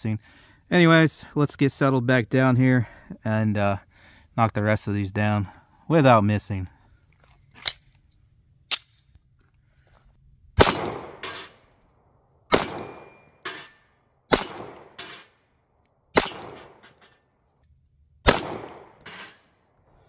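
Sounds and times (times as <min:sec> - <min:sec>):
pistol shots: 0:10.6 - 0:11.6, 0:12.5 - 0:13.7, 0:14.3 - 0:15.3, 0:16.1 - 0:17.0, 0:18.2 - 0:19.4
bullet knocking steel target: 0:12.5 - 0:15.3, 0:16.2 - 0:17.0, 0:18.3 - 0:19.4.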